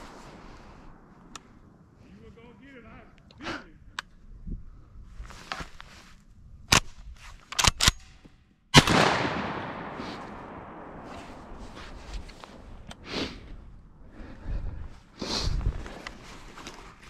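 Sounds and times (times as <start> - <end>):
sharp cracks: 0.0 - 2.0, 8.8 - 13.2
shotgun blast with echo: 8.8 - 12.7.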